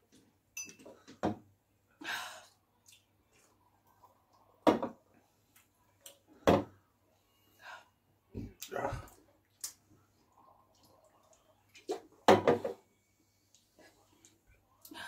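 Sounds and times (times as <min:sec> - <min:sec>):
objects knocking on a table: 0:12.3 - 0:12.8.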